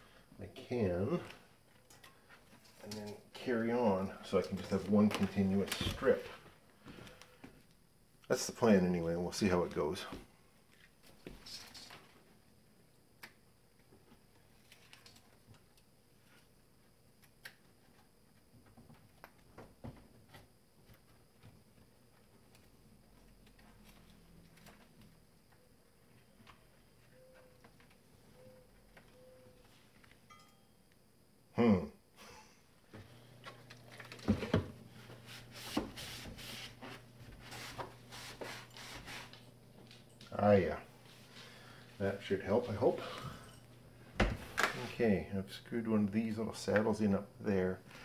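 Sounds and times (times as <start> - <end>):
faint steady hum: 0.0 - 48.0
cloth rubbing wood: 35.0 - 39.4.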